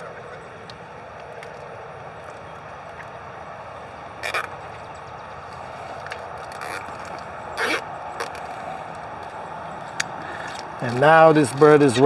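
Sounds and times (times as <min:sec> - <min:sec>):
steady background rumble: 0:00.0 - 0:12.0.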